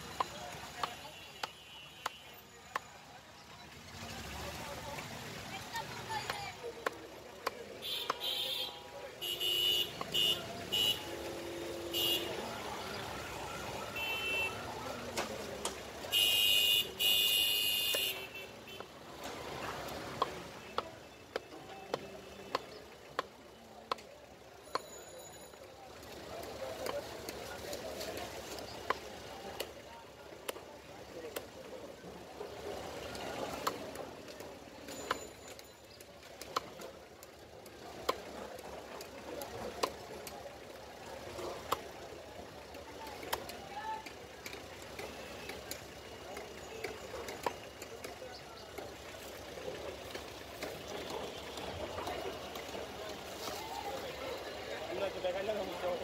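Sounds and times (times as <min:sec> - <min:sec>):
steady background noise: 0:00.0 - 0:56.0
street traffic: 0:00.0 - 0:56.0
vehicle horns honking: 0:00.7 - 0:02.6, 0:07.8 - 0:12.6, 0:13.8 - 0:14.7, 0:16.0 - 0:18.9.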